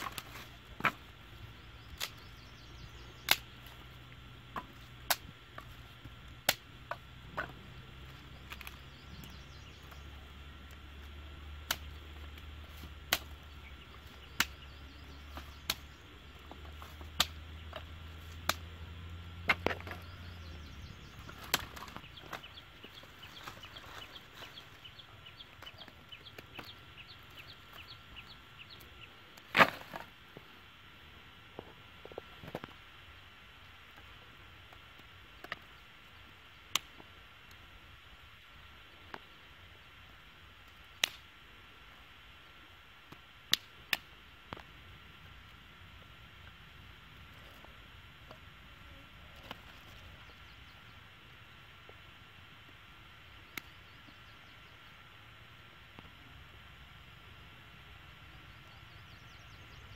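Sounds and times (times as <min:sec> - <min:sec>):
dry sticks snapping and clacking: 0:01.8 - 0:02.5, 0:03.1 - 0:03.8, 0:04.5 - 0:10.0, 0:10.6 - 0:18.8, 0:19.4 - 0:30.1, 0:36.7 - 0:37.0, 0:41.0 - 0:41.3, 0:43.5 - 0:44.7.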